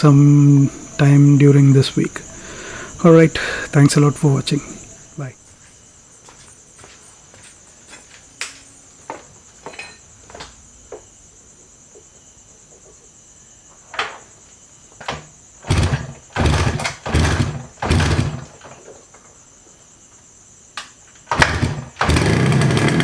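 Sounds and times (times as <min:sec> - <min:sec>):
motorcycle engine firing bursts: 0:15.6 - 0:18.6, 0:21.3 - 0:23.0.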